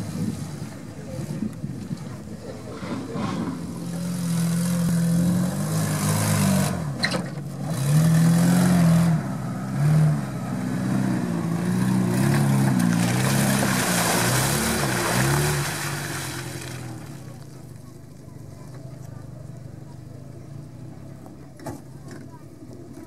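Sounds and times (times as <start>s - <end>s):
engine revving: 2.6s - 17.2s.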